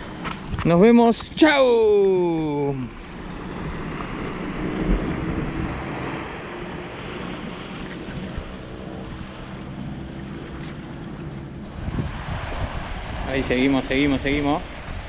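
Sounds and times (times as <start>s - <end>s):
sea waves washing against rocks: 0.0s - 15.0s
wind buffeting microphone: 0.0s - 15.0s.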